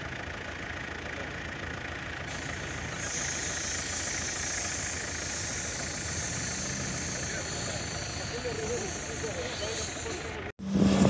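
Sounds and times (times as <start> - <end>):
suv engine running: 0.0 - 11.0
hiss of tyres in sand: 2.3 - 11.0.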